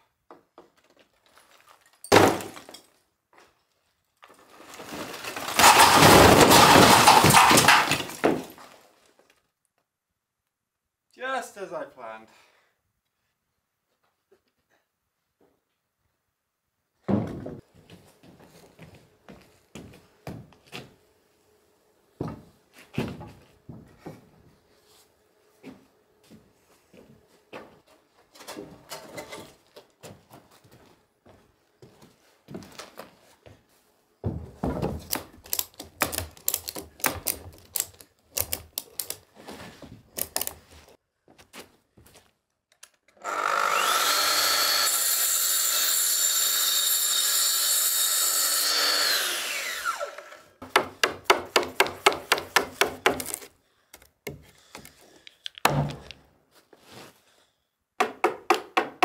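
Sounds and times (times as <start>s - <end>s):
plunge saw whining: 43.2s - 50.6s
knocks and taps on timber: 58.0s - 59.0s.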